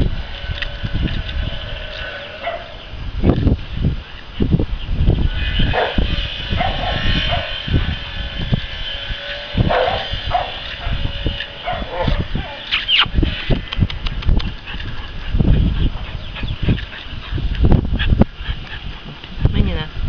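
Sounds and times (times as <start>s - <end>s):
puppies whining yelps: 9.6s - 13.1s
quick run of clicks: 12.7s - 15.4s.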